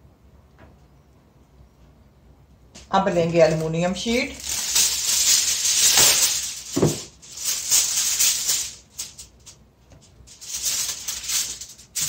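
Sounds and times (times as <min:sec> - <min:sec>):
aluminium foil crinkling: 0:02.9 - 0:12.0.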